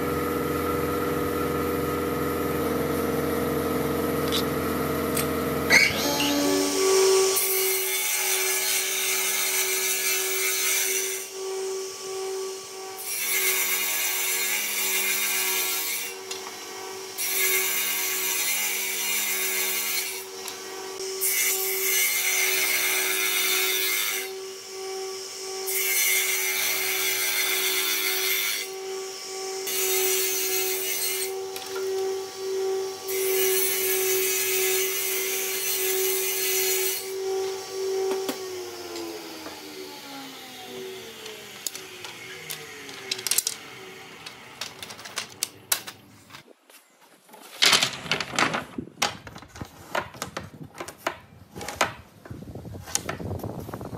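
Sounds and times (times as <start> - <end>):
table saw motor humming: 0.0 - 46.0
saw blade cutting wood: 4.1 - 44.9.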